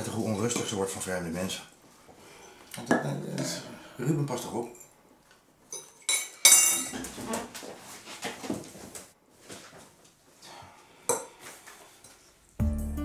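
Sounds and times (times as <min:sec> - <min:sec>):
cutlery clicking and scraping on plates: 0:05.7 - 0:07.2.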